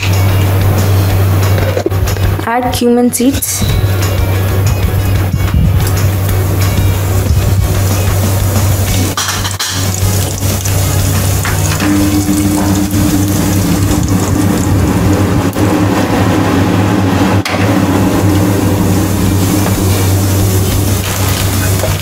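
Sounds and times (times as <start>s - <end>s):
low hum: 0.0s - 22.0s
seeds sizzling in hot oil: 7.0s - 14.9s, 18.8s - 22.0s.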